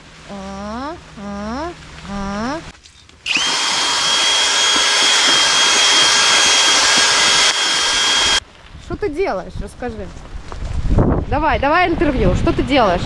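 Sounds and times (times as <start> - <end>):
electric drill motor whining: 3.3 - 8.4.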